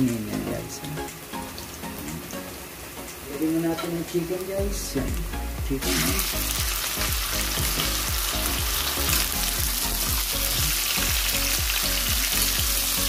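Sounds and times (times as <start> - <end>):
chicken sizzling in hot oil: 5.8 - 13.0.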